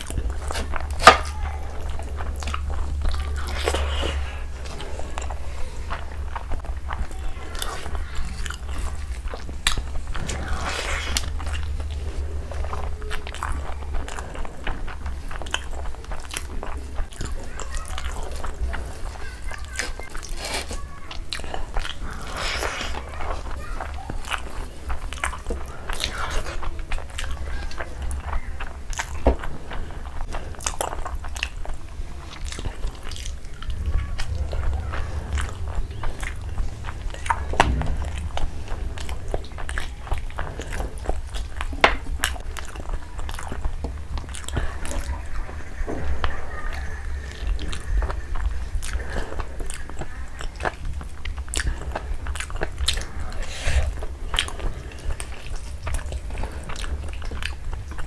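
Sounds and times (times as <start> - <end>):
chewing and wet mouth smacks: 0.0 - 58.0
low rumble: 26.8 - 58.0.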